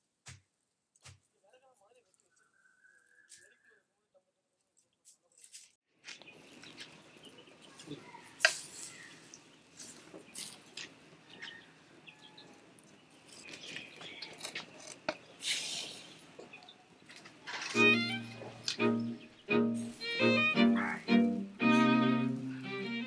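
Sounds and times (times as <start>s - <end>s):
birds chirping faintly: 6.0s - 23.0s
hissing rustle: 15.4s - 16.3s.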